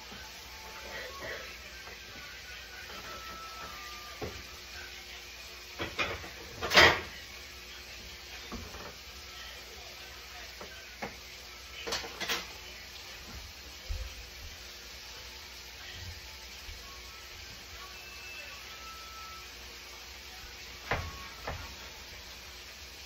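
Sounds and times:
dishes clattering: 0:05.8 - 0:07.2, 0:11.8 - 0:12.6.

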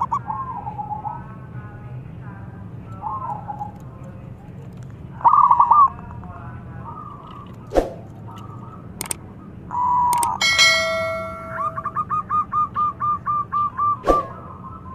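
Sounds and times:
dove cooing: 0:05.2 - 0:06.0
mouse clicks: 0:10.1 - 0:10.4
notification bell chime: 0:10.4 - 0:11.9.

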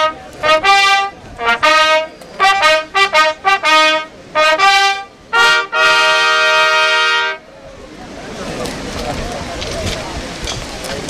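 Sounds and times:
brass fanfare: 0:00.0 - 0:07.4.

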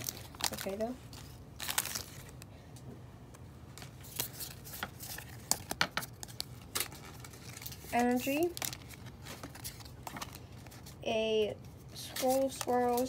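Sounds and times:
foil wrapper crinkling: 0:00.0 - 0:02.5, 0:03.8 - 0:11.0
cards shuffled: 0:03.8 - 0:11.0, 0:12.0 - 0:13.0.

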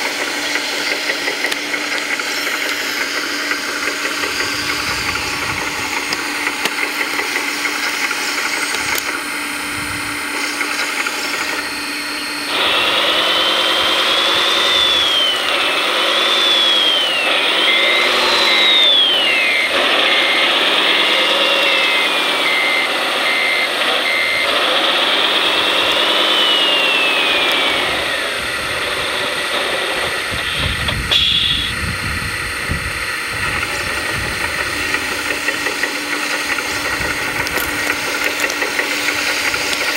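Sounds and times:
motor hum: 0:00.0 - 0:39.9
motor whine rising and falling: 0:00.0 - 0:39.9
short beeps: 0:17.5 - 0:24.5, 0:30.6 - 0:31.8.

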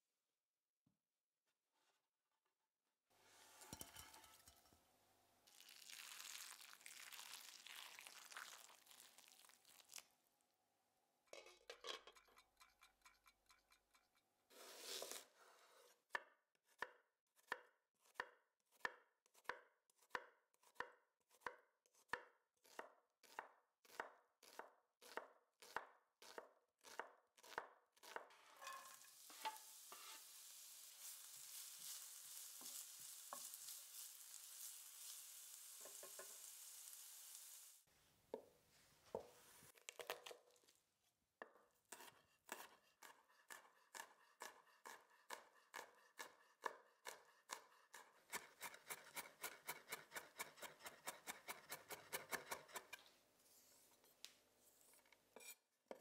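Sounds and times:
knife chopping onion on board: 0:16.1 - 0:28.3, 0:41.9 - 0:53.0.

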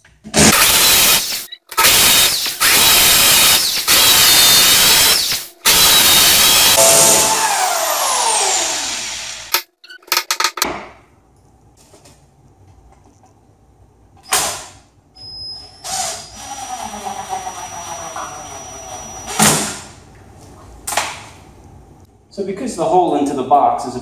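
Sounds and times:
hammer drill boring into concrete: 0:00.5 - 0:09.6, 0:16.2 - 0:19.4
drill motor winding down: 0:00.6 - 0:09.6, 0:16.4 - 0:19.4.

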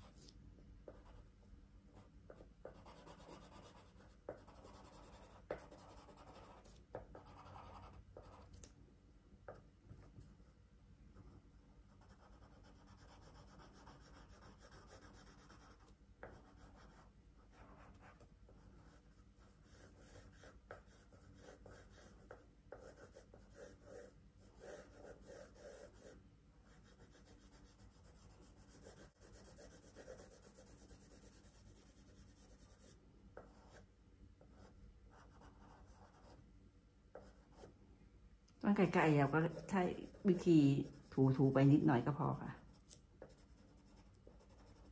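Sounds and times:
drawing tool scratching paper: 0:26.8 - 0:32.9, 0:42.7 - 0:44.9.

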